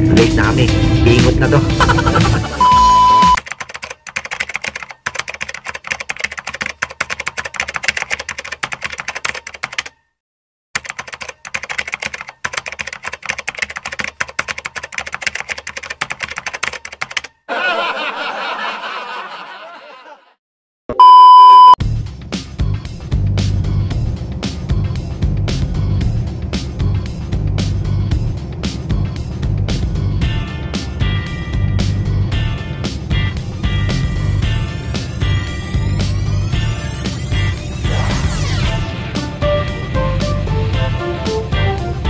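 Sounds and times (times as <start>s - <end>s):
music: 0.0s - 3.4s, 21.8s - 42.0s
short loud beep: 2.6s - 3.4s, 20.9s - 21.8s
typewriter key clicks: 3.4s - 10.0s.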